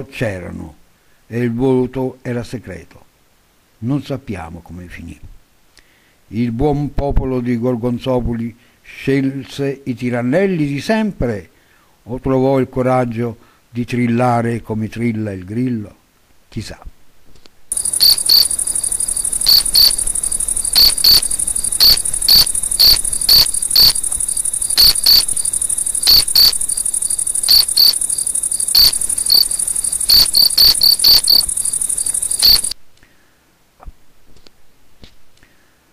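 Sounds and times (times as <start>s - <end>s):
cricket chirping: 17.7s - 32.8s.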